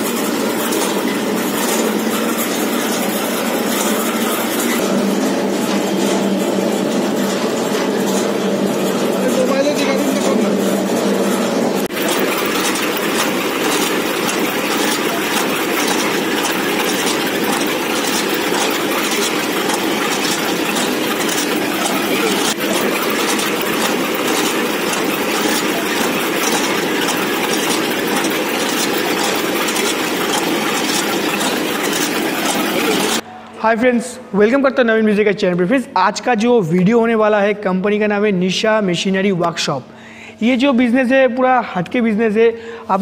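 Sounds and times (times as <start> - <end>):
puffed rice machine clattering: 0.0 - 33.2.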